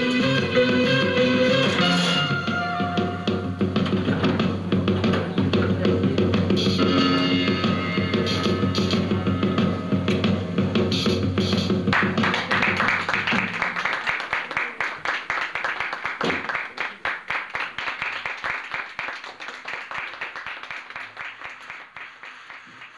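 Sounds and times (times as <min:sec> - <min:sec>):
backing music: 0:00.0 - 0:13.8
audience applauding: 0:11.9 - 0:22.9.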